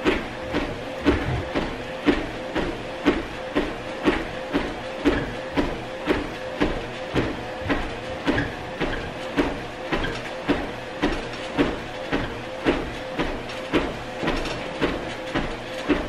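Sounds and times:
electric treadmill running: 0.0 - 16.0
footfalls thumping on treadmill belt: 0.0 - 16.0
treadmill squeaking: 0.0 - 16.0.

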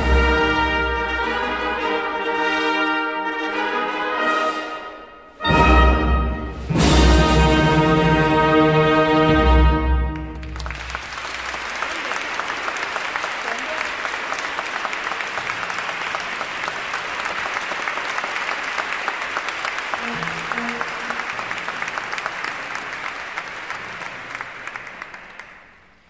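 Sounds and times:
audience applauding: 10.1 - 26.0.

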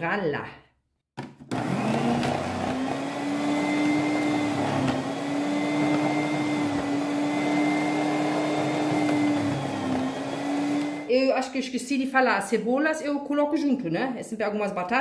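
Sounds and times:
food processor motor humming: 1.4 - 11.1.

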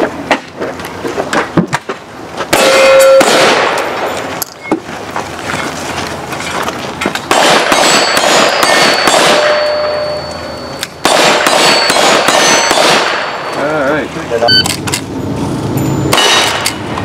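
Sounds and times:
gunshots echoing: 2.5 - 4.2, 7.3 - 10.1, 11.0 - 13.6, 16.1 - 16.8
steel targets clanging: 2.5 - 4.6, 6.4 - 13.7, 15.7 - 17.0.

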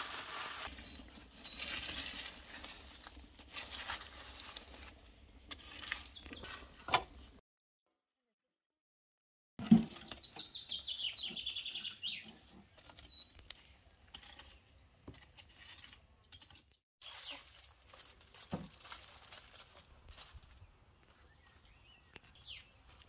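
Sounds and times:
songbird chirping: 0.7 - 2.0, 9.8 - 14.7, 15.6 - 23.0.

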